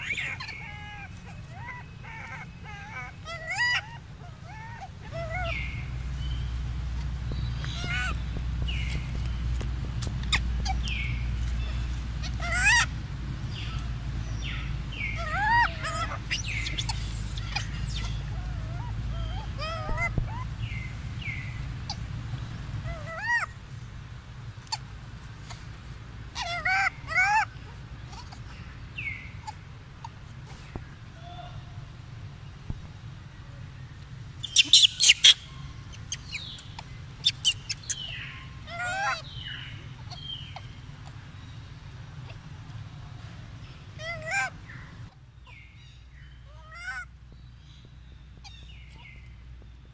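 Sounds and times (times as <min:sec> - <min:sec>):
monkey coo calls: 0:00.0 - 0:06.4, 0:07.6 - 0:09.2, 0:10.2 - 0:23.6, 0:26.3 - 0:31.9, 0:34.4 - 0:41.4, 0:42.0 - 0:45.8, 0:46.5 - 0:47.1
steady low rumble: 0:00.0 - 0:34.6.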